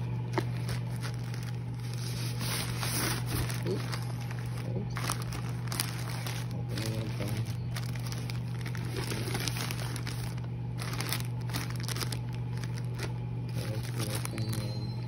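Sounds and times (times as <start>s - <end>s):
plastic wrapping crinkling: 0.0s - 15.0s
steady low hum: 0.0s - 15.0s.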